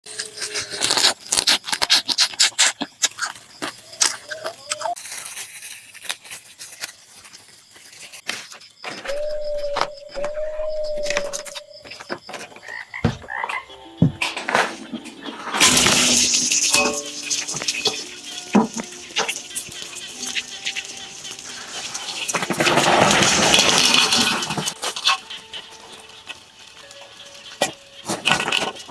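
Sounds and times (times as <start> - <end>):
crab shells cracking and crunching: 0.1 - 8.4
steady tone: 9.1 - 12.0.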